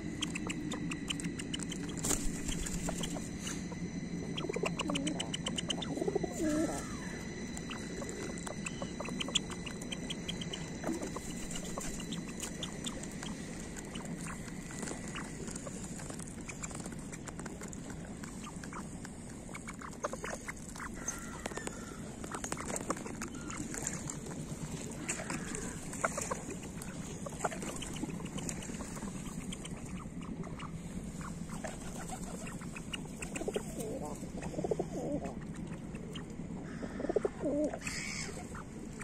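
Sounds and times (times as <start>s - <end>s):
ducks pecking on stone: 0.1s - 3.7s, 4.3s - 34.4s.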